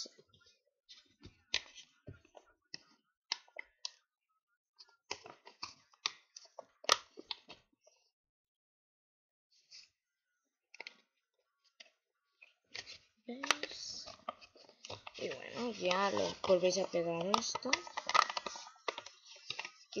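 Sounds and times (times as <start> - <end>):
sharp paper crack: 12.7 - 20.0
paper envelope crackling: 13.6 - 20.0.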